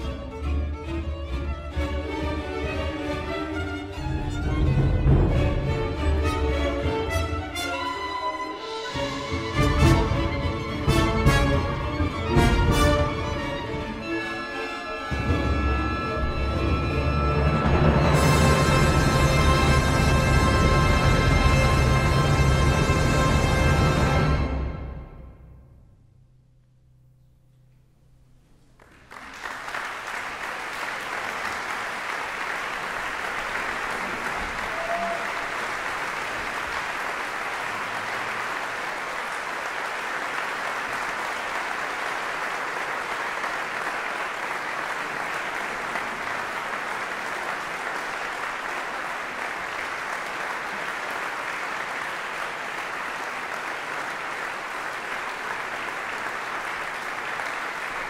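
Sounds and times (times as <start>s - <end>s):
audience applauding: 28.6s - 58.0s.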